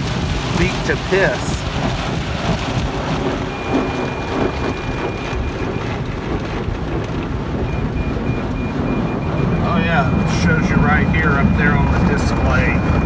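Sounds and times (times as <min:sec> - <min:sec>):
car wash water spraying: 0:00.0 - 0:13.0
parking sensor chime: 0:03.4 - 0:06.1, 0:07.6 - 0:13.0.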